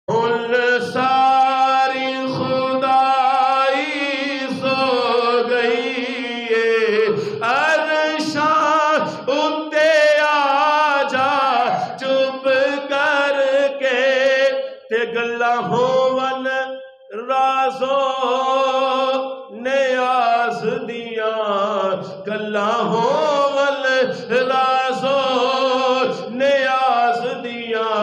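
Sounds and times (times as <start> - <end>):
man singing unaccompanied: 0.1 - 28.0
singer breathing: 7.1 - 7.4, 14.6 - 14.9.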